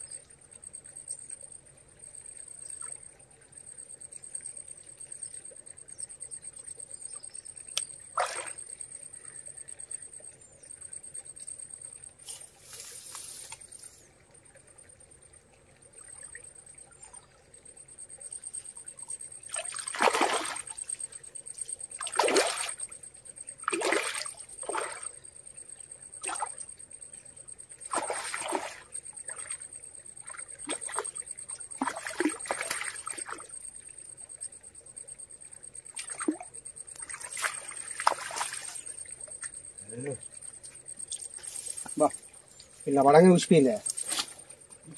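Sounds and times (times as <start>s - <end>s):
steady high-pitched whine: 0.0s - 44.9s
water splashing: 8.2s - 8.7s, 19.5s - 21.0s, 22.0s - 22.9s, 23.6s - 25.2s, 26.2s - 26.6s, 27.8s - 29.6s, 30.2s - 33.5s, 35.9s - 39.2s.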